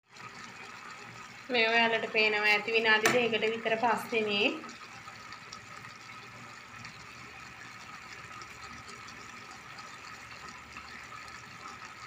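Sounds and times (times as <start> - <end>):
curry simmering hiss: 0.2 - 12.0.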